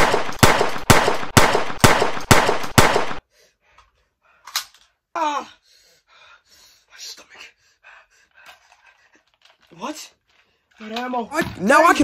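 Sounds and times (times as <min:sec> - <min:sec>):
rapid gunfire: 0:00.0 - 0:03.2.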